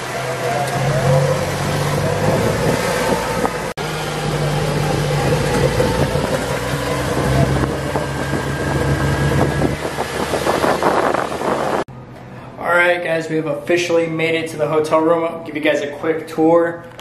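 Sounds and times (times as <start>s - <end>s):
golf cart motor hum: 0.0s - 11.9s.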